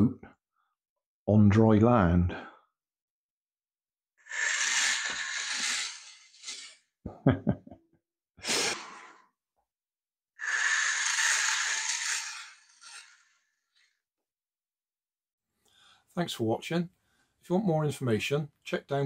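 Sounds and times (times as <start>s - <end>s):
small motor and gearbox whirring: 4.2s - 6.8s, 10.4s - 13.9s.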